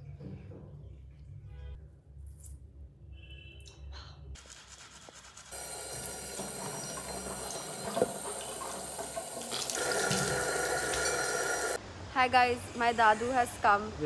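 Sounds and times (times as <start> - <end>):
tap water running into sink: 5.5 - 11.8
water splashing on face: 5.6 - 11.8.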